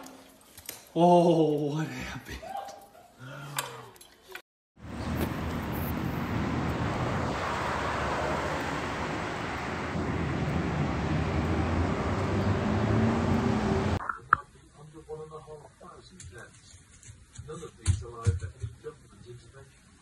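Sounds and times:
outdoor rushing noise: 4.8s - 14.0s.

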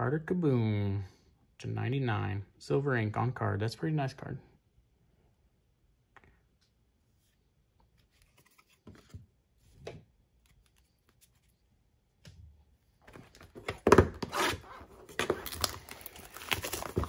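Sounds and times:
plastic wrap tearing and crinkling: 14.3s - 17.0s.

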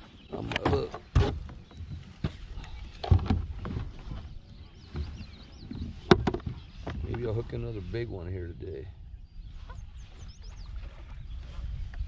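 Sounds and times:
low bumps: 0.0s - 8.2s
fishing gear knocking on kayak: 6.0s - 7.2s.

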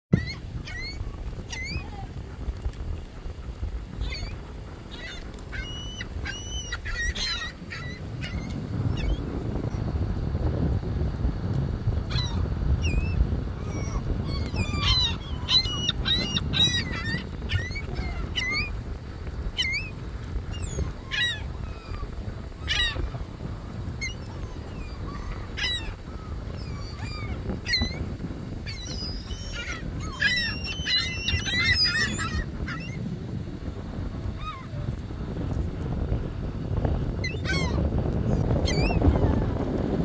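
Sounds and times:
low steady rumble: 0.1s - 40.0s
seagulls squawking: 0.2s - 2.1s, 4.0s - 9.2s, 12.1s - 18.8s, 19.5s - 23.2s, 24.0s - 33.0s, 34.4s - 34.7s, 37.2s - 37.9s.

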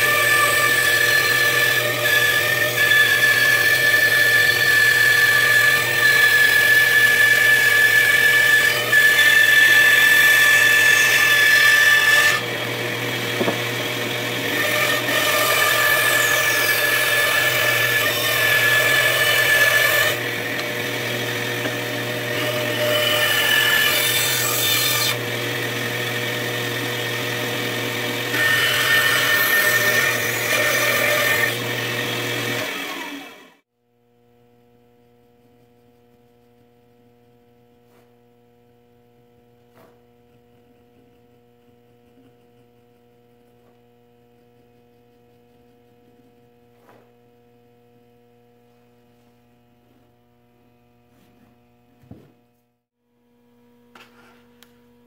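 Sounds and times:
bandsaw blade cutting wood: 0.0s - 33.6s
bandsaw motor hum: 0.0s - 33.6s.

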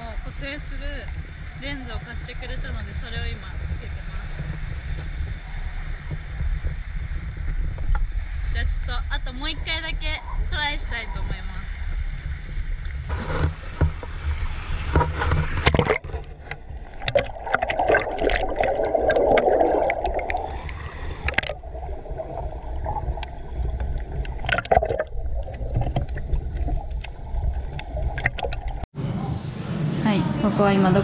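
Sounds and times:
low rumble: 0.0s - 31.0s
sea water sloshing: 9.5s - 28.9s
bubbly clicks: 15.6s - 28.9s.

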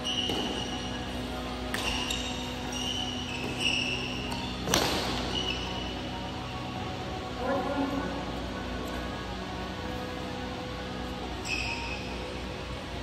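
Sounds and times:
racquets striking shuttlecock: 0.0s - 5.6s
sneakers squeaking on court: 0.0s - 6.2s, 11.3s - 12.2s
steady low hum: 0.0s - 13.0s.

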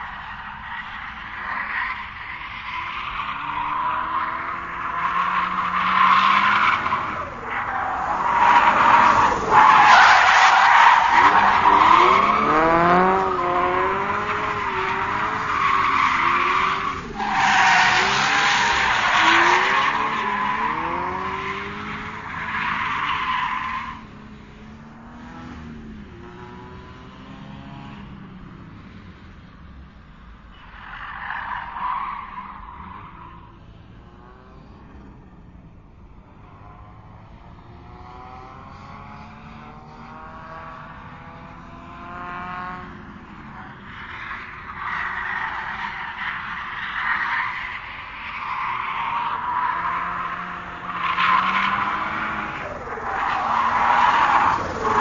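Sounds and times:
tire squeals and skids: 0.0s - 24.5s, 30.4s - 34.4s, 37.9s - 55.0s
engine revving: 11.1s - 17.2s, 17.8s - 23.0s, 24.2s - 28.1s, 37.0s - 43.6s.

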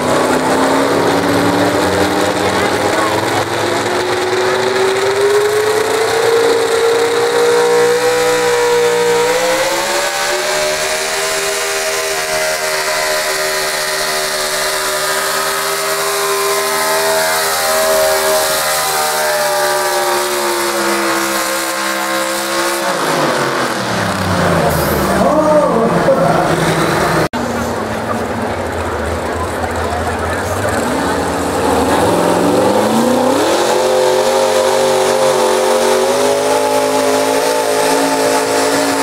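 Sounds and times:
pickup truck engine at full power: 0.0s - 39.0s.

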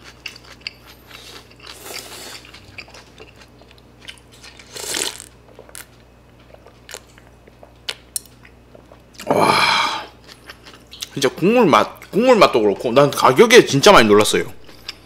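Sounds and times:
chewing: 0.0s - 9.3s, 10.1s - 11.2s.

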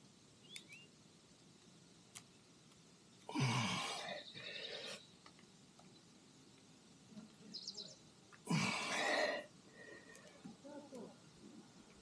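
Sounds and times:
man sighing: 3.3s - 4.2s, 8.5s - 9.9s.

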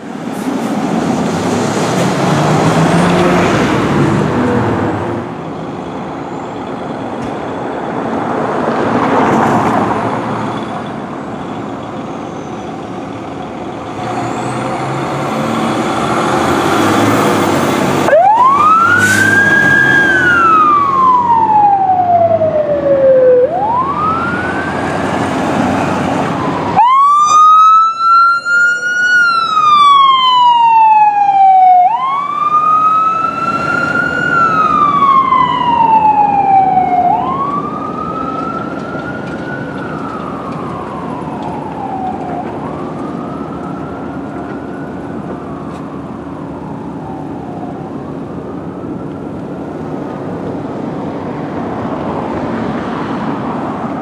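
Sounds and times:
fire engine diesel rumbling: 0.0s - 54.0s
siren winding up and down: 16.2s - 25.0s, 26.3s - 47.8s
buzzy ambulance siren wailing: 16.9s - 25.2s, 26.3s - 49.7s.

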